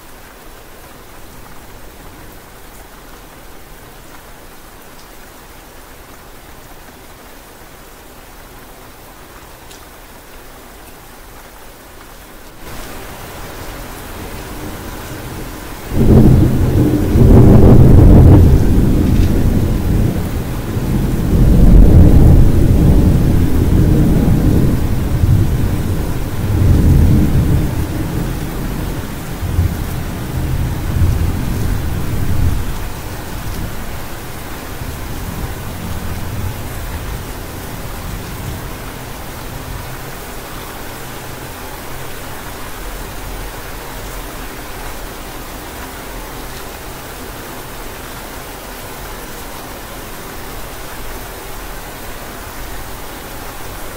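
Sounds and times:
steady rain: 0.0s - 53.9s
thunder rumbling: 12.7s - 39.9s.

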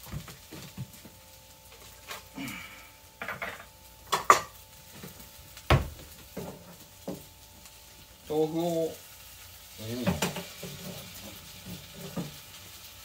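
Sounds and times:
cabinet door shutting: 5.7s - 6.0s.

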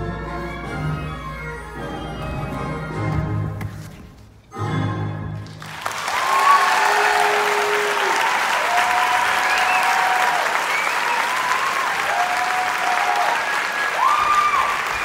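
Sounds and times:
orchestral music chords: 0.0s - 3.6s, 4.5s - 5.6s
audience applause: 5.4s - 15.0s
people cheering: 5.6s - 15.0s.

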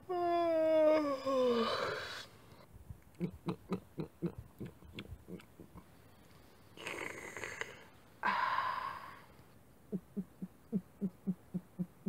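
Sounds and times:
short low gulps: 2.8s - 5.9s, 9.9s - 12.0s
breathy gasps: 6.8s - 9.3s.

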